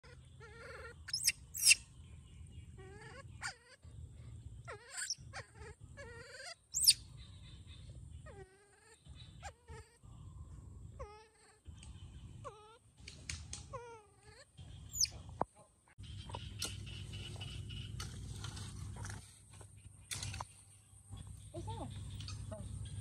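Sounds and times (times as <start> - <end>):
baby monkey shrieks: 0.0 - 1.8, 2.8 - 3.8, 4.7 - 7.1, 13.7 - 15.1
baby monkey whimpering coos: 0.0 - 1.8, 2.8 - 3.8, 4.6 - 7.1, 8.2 - 10.0, 11.0 - 11.8, 12.4 - 12.8, 13.7 - 15.1.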